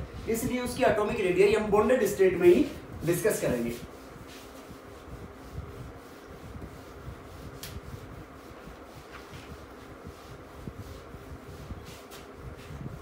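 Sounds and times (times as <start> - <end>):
fan hum: 0.0 - 13.0
whiteboard eraser rubbing: 1.9 - 13.0.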